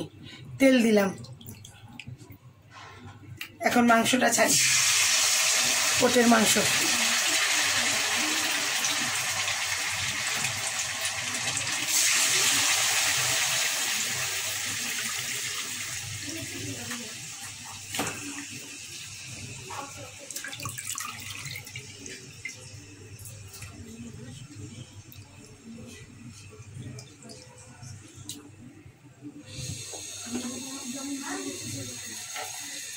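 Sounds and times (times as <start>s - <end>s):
meat sizzling in hot oil: 4.5s - 20.2s.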